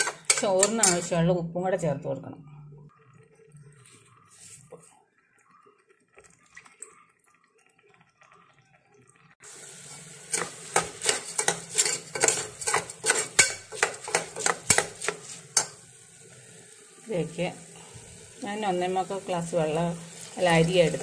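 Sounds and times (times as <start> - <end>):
ladle scraping metal pot: 0.0 - 1.2, 9.8 - 15.8.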